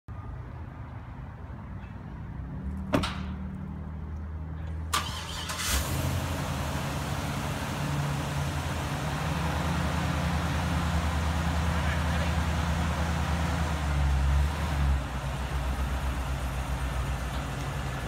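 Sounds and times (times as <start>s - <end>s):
truck engine running: 5.0s - 18.0s.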